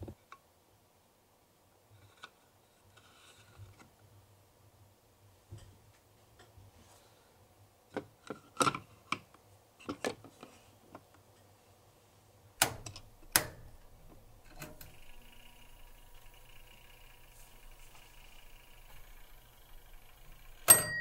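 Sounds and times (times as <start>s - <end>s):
steady hum: 11.5s - 21.0s.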